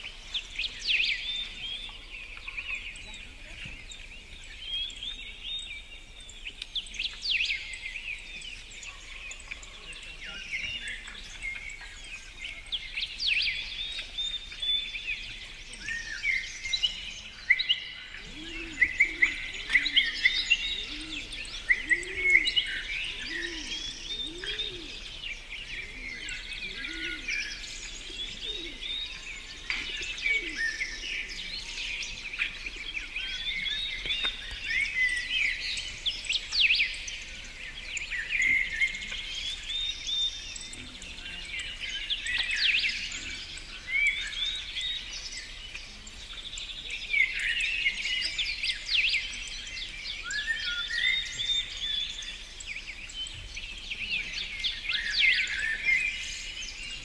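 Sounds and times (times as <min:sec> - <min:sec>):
songbirds singing and chirping: 0:00.0 - 0:57.0
low bird call: 0:15.3 - 0:49.4.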